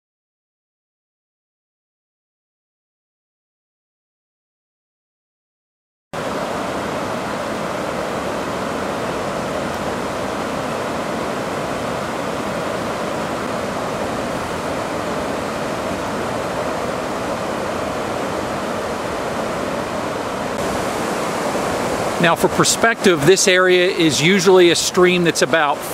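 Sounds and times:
flooded stream rushing: 6.2 - 25.9.

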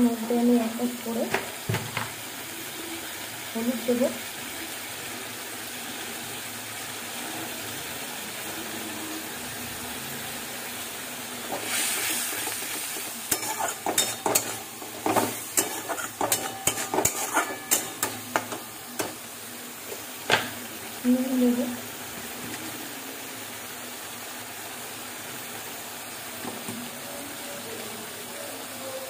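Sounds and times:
onions sizzling in oil: 0.0 - 29.0
metal spatula scraping a wok: 11.5 - 19.2.

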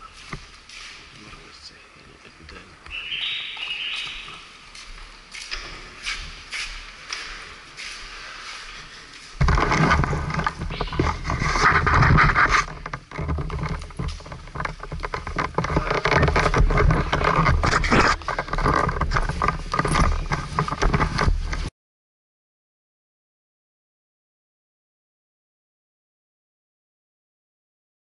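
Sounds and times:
clothing rubbing on microphone: 5.8 - 21.7.

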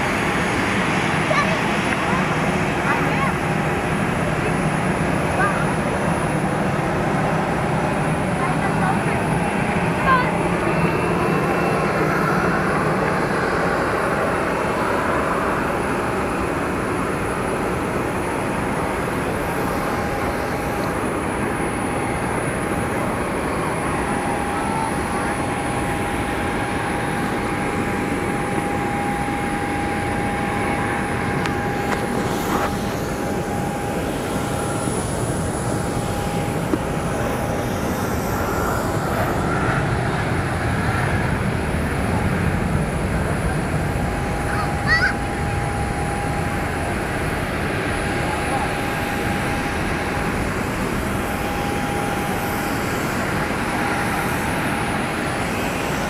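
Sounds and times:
jet engine roar: 0.0 - 56.0
thin engine whine: 0.0 - 56.0.

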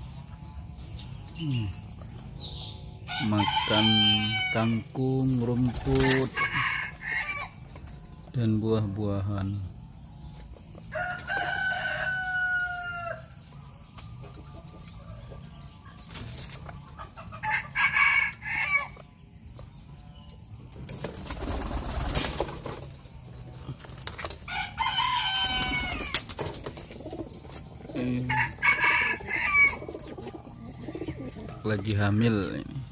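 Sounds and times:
rooster crowing: 3.1 - 4.7, 10.9 - 13.3, 24.5 - 26.2, 28.2 - 29.8.

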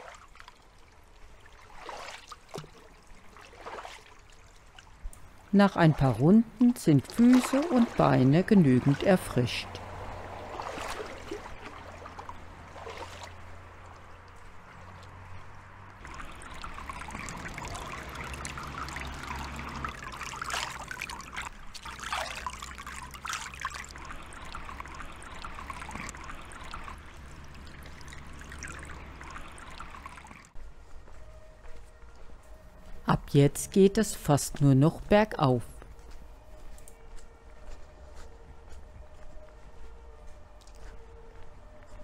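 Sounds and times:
water trickling and splashing: 0.0 - 30.6.

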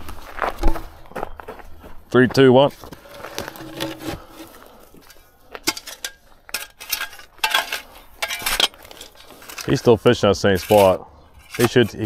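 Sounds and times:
knocks and scrapes of wooden post: 2.8 - 12.0.

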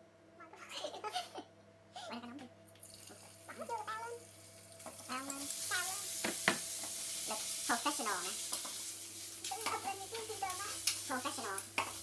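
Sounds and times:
meat sizzling in a pan: 2.8 - 12.0
chopsticks clicking against a pan: 10.4 - 12.0.

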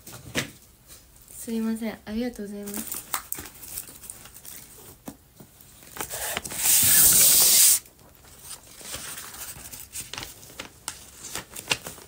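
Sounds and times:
rustling and handling noises: 2.4 - 12.0
loud hiss: 6.1 - 7.8.

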